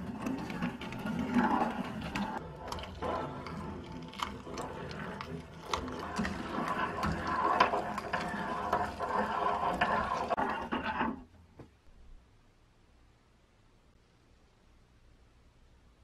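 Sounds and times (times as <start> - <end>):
hand-cranked food chopper grinding: 0.0 - 11.0.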